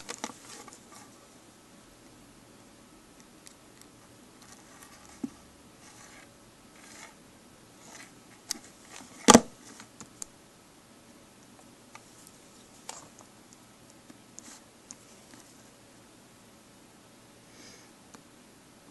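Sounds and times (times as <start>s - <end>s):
phone case rubbing: 4.4s - 7.2s, 7.8s - 9.8s.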